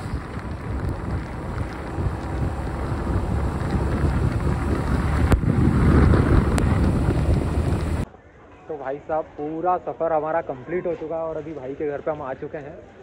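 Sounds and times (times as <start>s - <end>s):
road noise on wet road: 0.0s - 8.0s
wind buffeting microphone: 0.0s - 8.1s.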